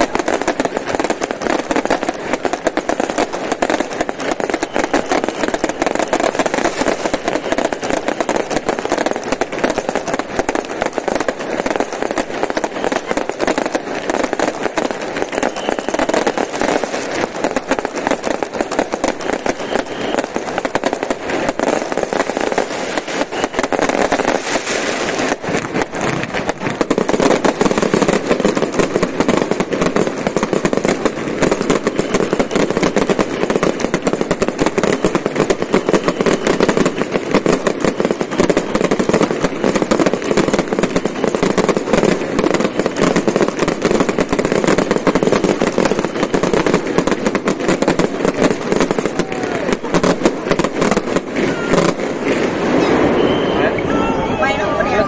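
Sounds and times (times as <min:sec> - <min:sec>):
fireworks bangs and crackles: 0:00.0 - 0:55.0.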